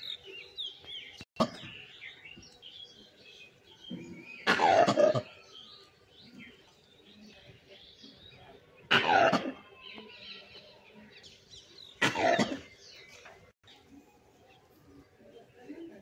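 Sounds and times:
small birds chirping: 0.0 - 8.9, 9.6 - 16.0.

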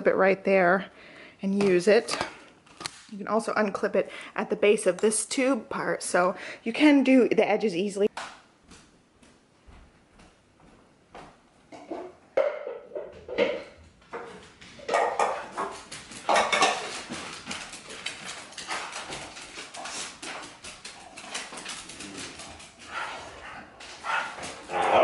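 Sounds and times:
dog claws clicking on wood floor: 14.0 - 24.7.

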